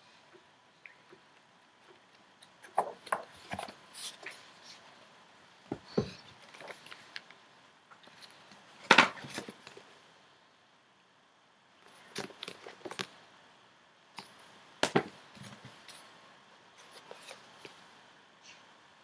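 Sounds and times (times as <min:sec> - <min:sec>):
books knocking: 0:08.9 - 0:09.5, 0:14.8 - 0:15.7
rustling: 0:14.1 - 0:17.9.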